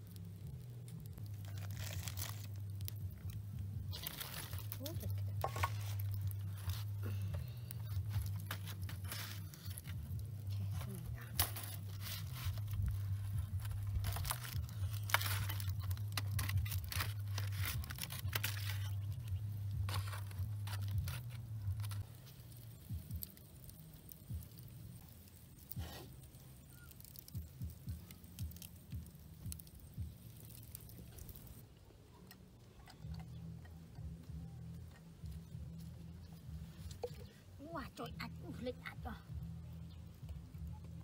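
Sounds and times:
aluminium foil crinkling: 0.0 - 31.6.

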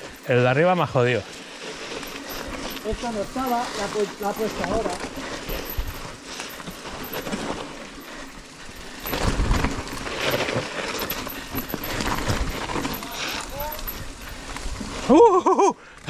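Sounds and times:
bike frame rattling: 0.0 - 15.4
bike tyres rolling over dirt: 0.0 - 16.0
wind on microphone: 9.1 - 10.1.

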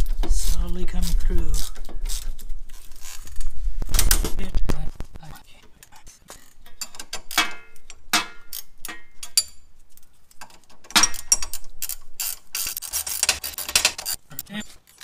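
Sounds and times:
ratcheting wrench clicking: 10.4 - 14.2.

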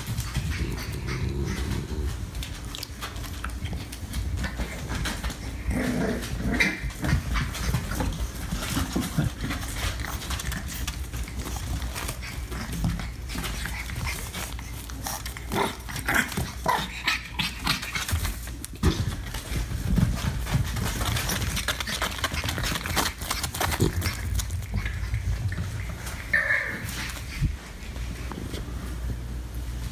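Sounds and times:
puppies scuffling: 0.0 - 29.9.

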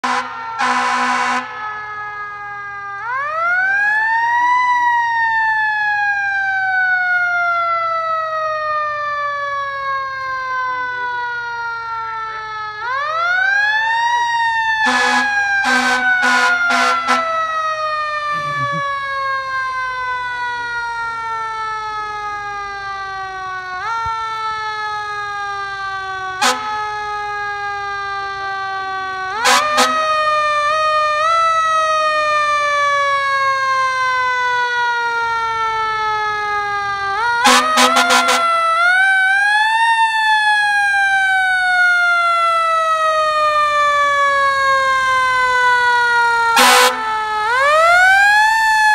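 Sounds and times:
air horn blasts: 0.0 - 1.6, 14.8 - 17.4, 26.4 - 26.8, 29.4 - 30.2, 37.4 - 38.6, 46.6 - 47.1
fire truck siren wailing: 0.0 - 48.9.

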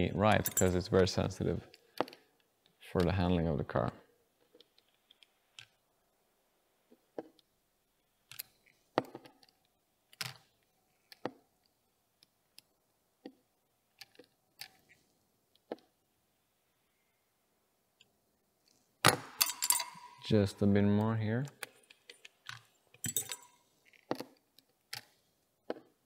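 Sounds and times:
small tools clicking and tapping: 21.6 - 25.9.

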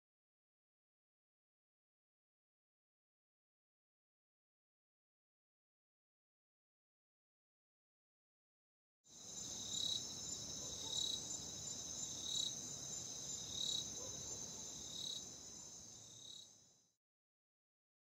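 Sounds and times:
insects trilling: 9.1 - 16.8
cricket chirping: 9.1 - 17.0.

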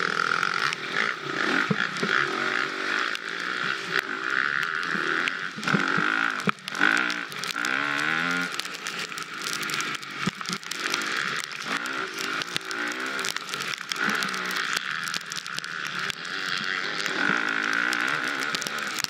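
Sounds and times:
dirt bike engine revving: 0.0 - 19.0
sharp clicks and knocks: 4.0 - 19.0.

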